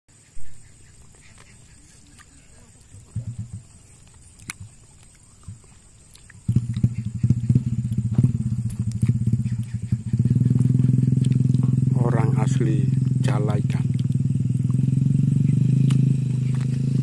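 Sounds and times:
small engine running: 2.5s - 4.7s, 6.3s - 17.0s.

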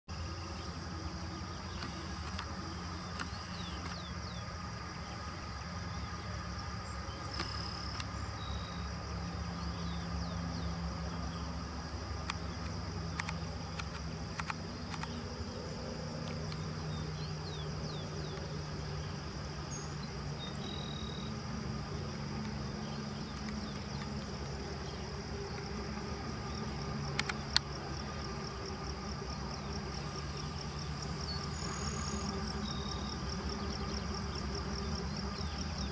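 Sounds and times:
distant engine hum: 0.1s - 35.9s
insects trilling: 0.1s - 35.9s
faint clicks: 1.7s - 4.1s, 7.2s - 8.2s, 12.2s - 15.2s, 16.2s - 16.6s, 23.2s - 24.3s, 27.1s - 27.7s.

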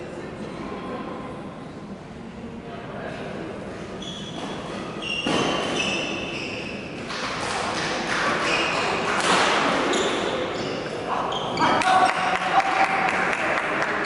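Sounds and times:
echoing sports hall noise: 0.0s - 14.0s
shoes squeaking on floor: 4.0s - 7.1s, 7.8s - 11.8s.

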